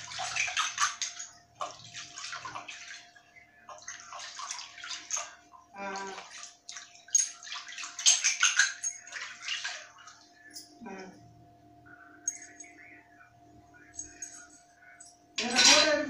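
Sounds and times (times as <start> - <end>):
water splashing in a basin: 0.0 - 10.4
faint steady hum: 0.0 - 16.0.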